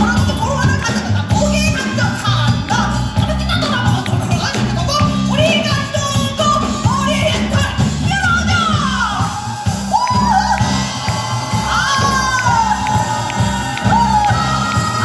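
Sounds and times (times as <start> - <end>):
person singing: 11.5 - 15.0.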